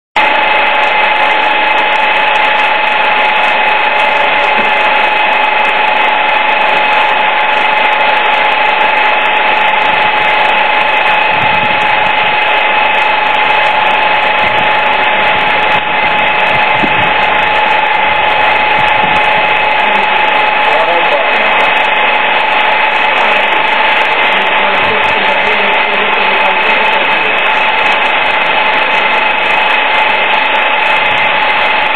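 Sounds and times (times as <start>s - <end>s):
machine whine and hiss: 0.2s - 31.9s.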